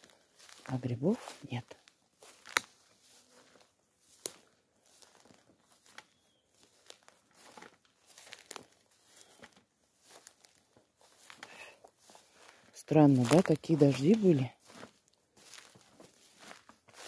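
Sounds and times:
footsteps rustling leaves: 0:00.0 - 0:17.0
twig snapping: 0:02.4 - 0:02.8.

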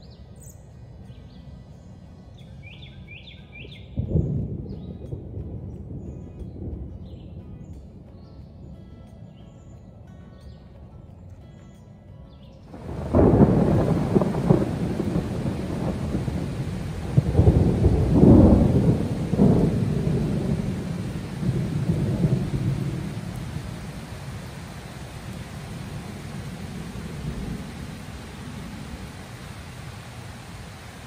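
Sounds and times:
heavy rain pouring: 0:12.7 - 0:31.0
loud low rumbling surges: 0:12.7 - 0:31.0.

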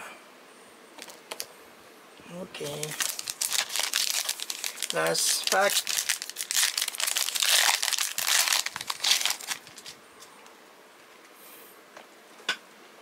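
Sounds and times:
plastic wrapper crinkling and tearing: 0:01.0 - 0:01.5, 0:02.6 - 0:10.0.

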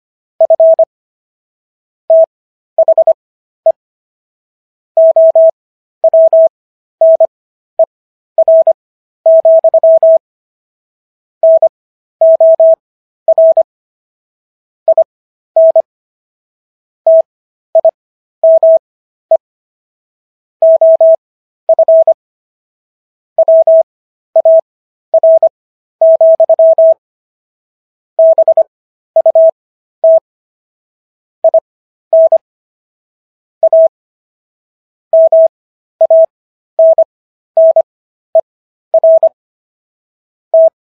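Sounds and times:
morse code beeps: 0:00.4 - 0:00.9, 0:02.1 - 0:03.8, 0:05.0 - 0:07.3, 0:08.4 - 0:10.2, 0:11.4 - 0:13.7, 0:14.9 - 0:15.9, 0:17.1 - 0:19.4, 0:20.6 - 0:22.2, 0:23.4 - 0:23.8, 0:24.4 - 0:27.0, 0:28.2 - 0:30.3, 0:31.4 - 0:32.4, 0:33.6 - 0:33.9, 0:35.2 - 0:39.4, 0:40.6 - 0:40.8.

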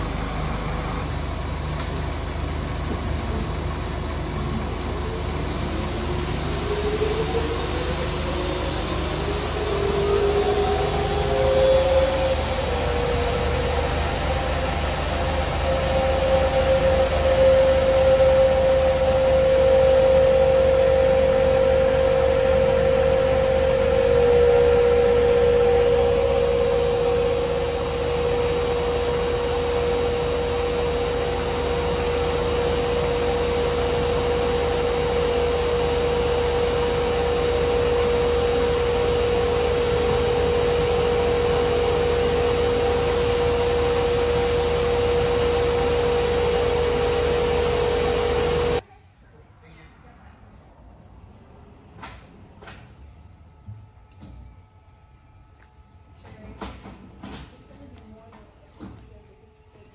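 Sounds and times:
centrifuge machine hum and whine: 0:00.0 - 0:59.9.

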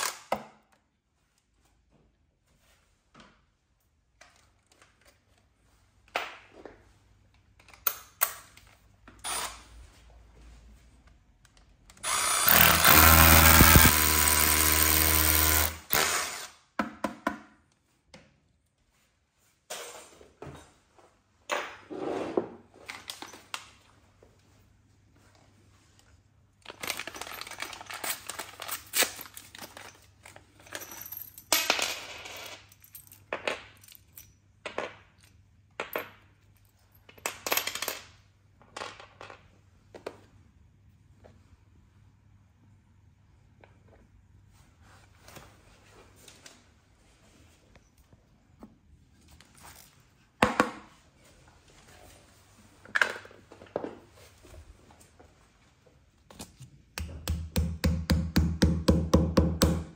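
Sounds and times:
cordless drill boring into wall: 0:09.2 - 0:09.6, 0:12.0 - 0:16.6
screws and wall plugs clinking: 0:12.0 - 0:16.0.

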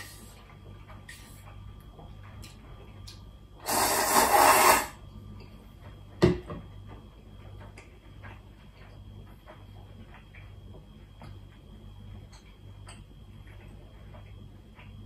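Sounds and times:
slurping noodles: 0:03.6 - 0:05.0.

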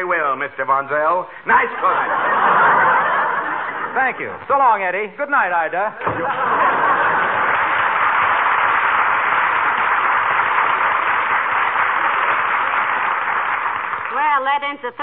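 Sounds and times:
audience applause: 0:06.1 - 0:14.4.

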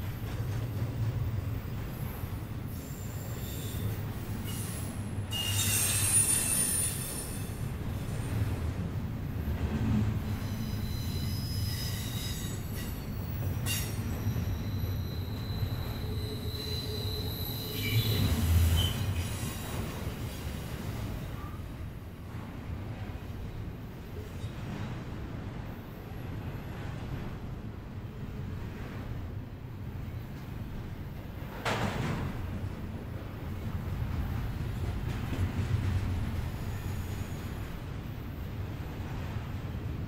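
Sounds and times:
steel wheels rumbling on rail: 0:00.0 - 0:40.0
wheel squeal: 0:04.5 - 0:07.5, 0:10.3 - 0:12.9, 0:13.7 - 0:19.8.

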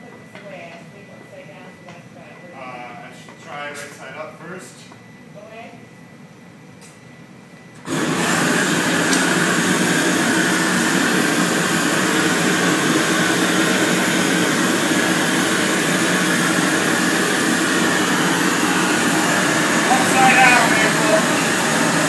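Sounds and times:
gas torch flame hissing: 0:07.8 - 0:22.0.

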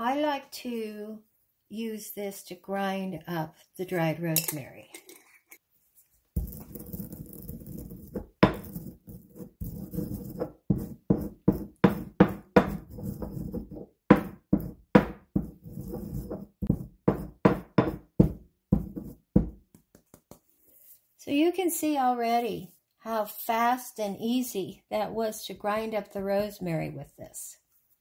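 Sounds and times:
stone pestle scraping in mortar: 0:06.4 - 0:18.0
pestle pounding in mortar: 0:09.8 - 0:19.7.

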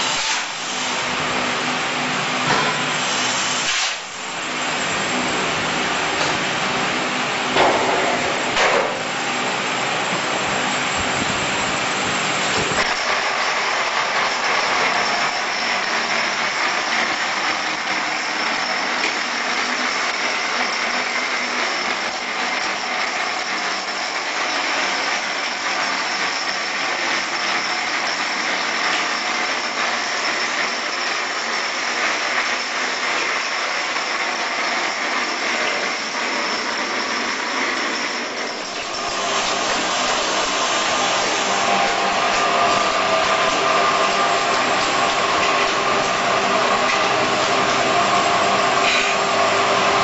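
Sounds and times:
thin high whine: 0:00.0 - 0:50.0
electric motor running: 0:10.9 - 0:50.0.

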